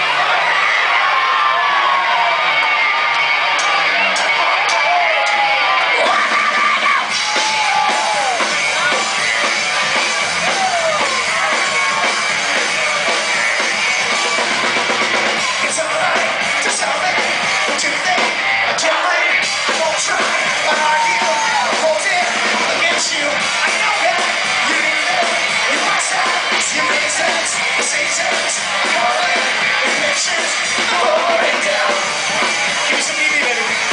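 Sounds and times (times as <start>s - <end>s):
rock band playing: 0.0s - 33.9s.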